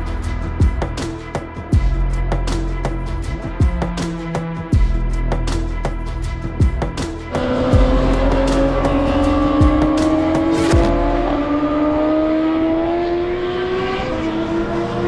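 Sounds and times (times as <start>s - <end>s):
motorcycle engine accelerating: 7.3s - 15.0s.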